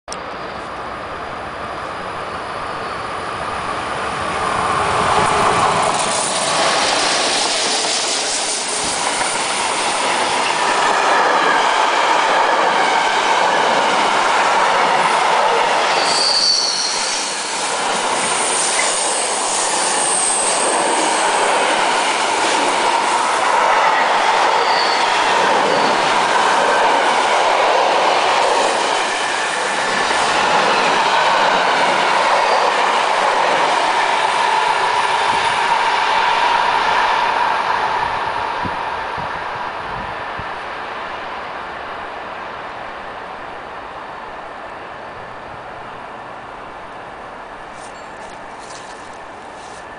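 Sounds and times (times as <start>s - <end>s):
freight train wheels on rails: 0.1s - 49.9s
high-pitched wheel squeals: 15.9s - 17.7s, 24.6s - 26.0s.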